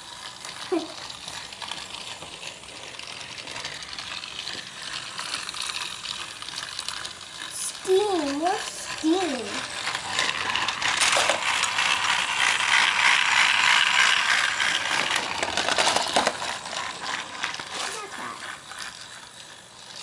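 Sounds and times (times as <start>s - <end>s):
fast clicking rattle: 0.0s - 20.0s
toy train motor whirring: 0.0s - 20.0s.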